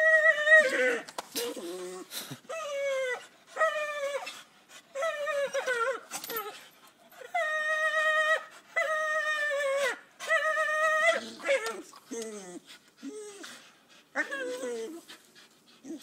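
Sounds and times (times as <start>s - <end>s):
dog whining: 0.0s - 4.4s, 7.2s - 13.6s.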